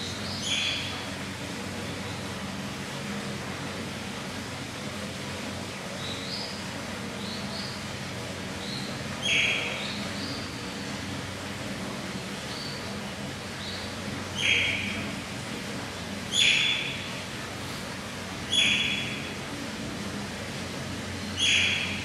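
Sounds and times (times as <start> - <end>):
otter squealing calls: 8.7 - 10.6, 14.3 - 15.1, 16.3 - 17.1, 18.4 - 19.3, 21.3 - 22.0.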